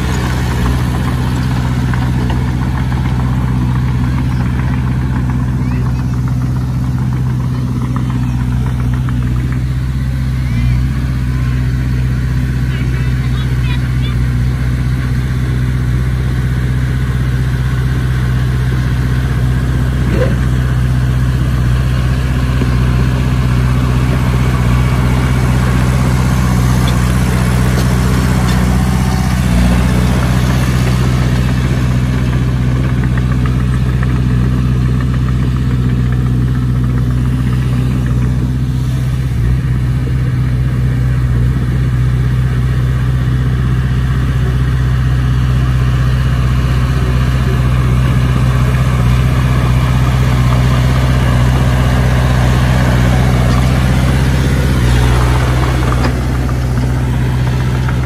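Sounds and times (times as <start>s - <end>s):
diesel engine droning: 0.0s - 58.0s.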